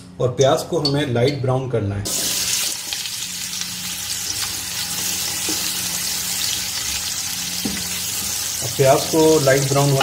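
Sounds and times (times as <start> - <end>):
onions sizzling in hot fat: 2.1 - 10.0.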